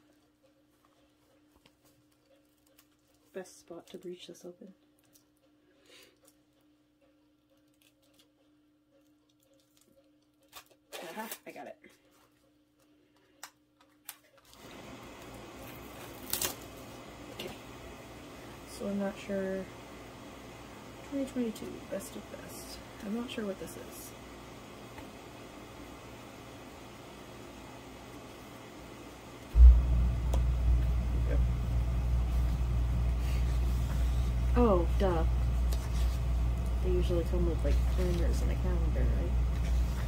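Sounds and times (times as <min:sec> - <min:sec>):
packaging clicks and crackles: 0:07.5 - 0:11.6
steady low hiss: 0:27.9 - 0:39.7
low steady rumble: 0:29.5 - 0:40.0.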